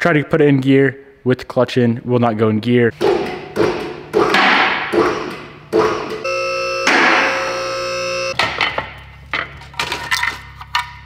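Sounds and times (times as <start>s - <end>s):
synthesized chord tone: 6.3s - 8.4s.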